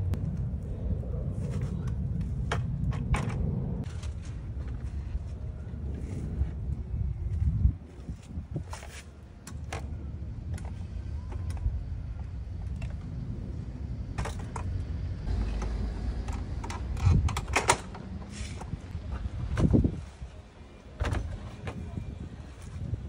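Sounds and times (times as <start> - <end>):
low rumble: 0.0 - 8.6, 9.8 - 20.1.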